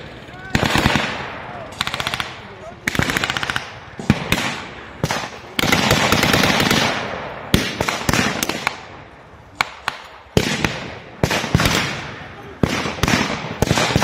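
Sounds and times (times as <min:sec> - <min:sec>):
machine-gun burst: 0:00.5 - 0:01.2, 0:01.8 - 0:08.6
rifle and pistol shots: 0:00.5 - 0:14.0.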